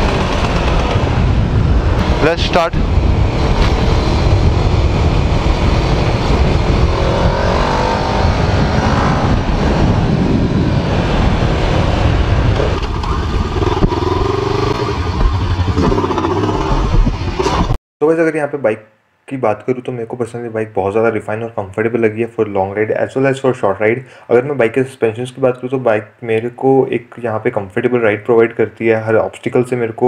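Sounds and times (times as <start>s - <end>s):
motorcycle engine accelerating: 0.0s - 17.8s
wind rush on microphone: 0.0s - 17.8s.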